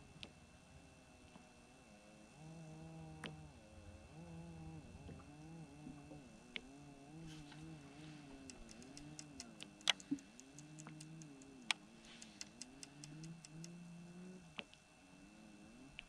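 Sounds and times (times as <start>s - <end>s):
faint wavering hum: 0.0s - 16.0s
light ticks: 8.2s - 13.8s
sharp clicks: 8.2s - 13.8s.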